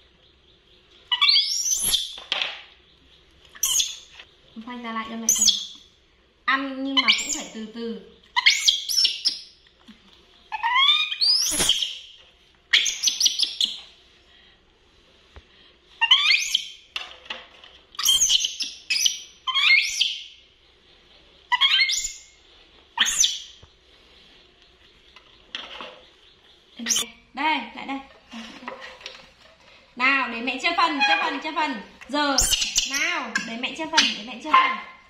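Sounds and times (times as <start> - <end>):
monkeys squeaking and chirping: 1.1 - 2.2, 3.6 - 4.2, 5.2 - 5.8, 6.9 - 7.6, 8.3 - 9.4, 10.5 - 13.9, 16.0 - 16.8, 18.0 - 20.3, 21.5 - 23.6, 26.8 - 27.1, 30.9 - 31.6, 32.3 - 35.0.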